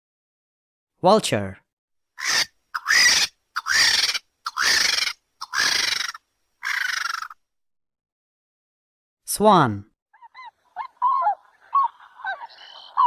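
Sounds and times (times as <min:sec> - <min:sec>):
vulture screeching: 0:02.2 - 0:07.4, 0:10.2 - 0:13.0.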